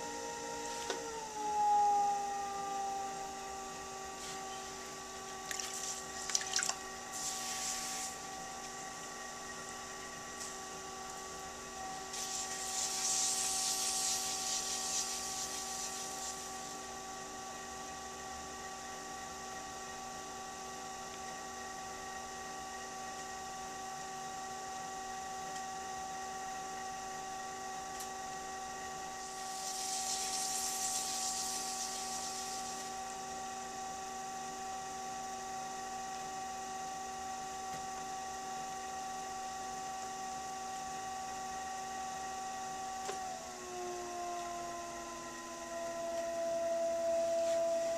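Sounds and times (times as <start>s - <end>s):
pottery wheel motor hum: 0.0s - 47.9s.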